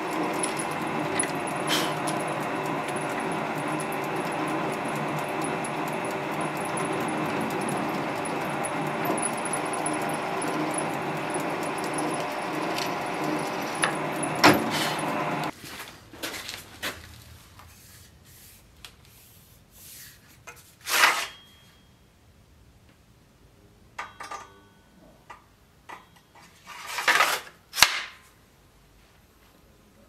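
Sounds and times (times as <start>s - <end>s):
sword scraping from scabbard: 20.0s - 21.5s
short metallic ring: 21.1s - 22.1s.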